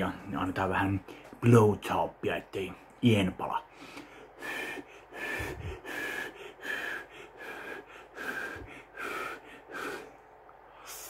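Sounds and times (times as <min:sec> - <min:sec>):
man blowing breathy puffs: 0:03.8 - 0:10.2.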